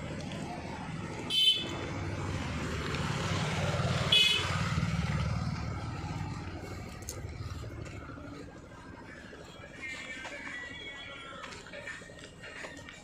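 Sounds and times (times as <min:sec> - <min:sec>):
vehicle engine passing: 0:00.0 - 0:09.8.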